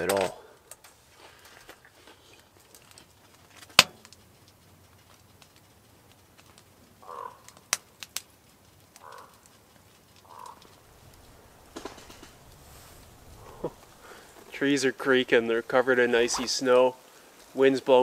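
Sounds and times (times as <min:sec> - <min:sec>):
trees creaking in wind: 0:00.0 - 0:18.0
faint clicks: 0:00.5 - 0:14.5
sharp crack: 0:02.6 - 0:18.0.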